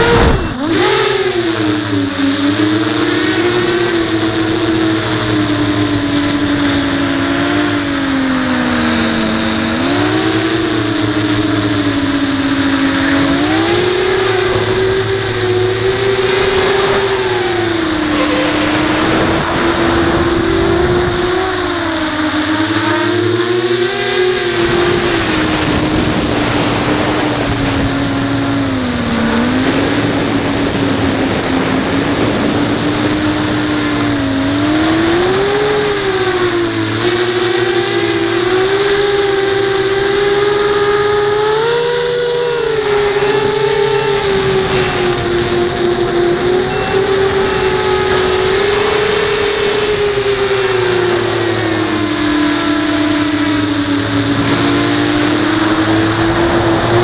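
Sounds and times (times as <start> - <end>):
drone motors whining: 0.0 - 57.0
wind on microphone: 0.0 - 57.0.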